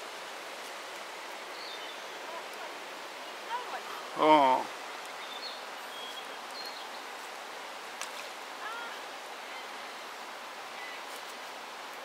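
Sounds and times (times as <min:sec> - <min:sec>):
river flowing over stones: 0:00.0 - 0:12.0
faint bird chirps: 0:04.9 - 0:07.0.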